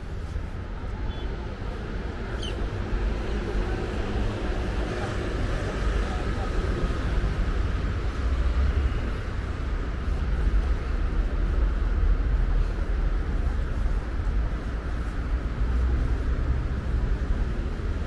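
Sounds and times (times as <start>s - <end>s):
city road traffic rumble: 0.0s - 18.0s.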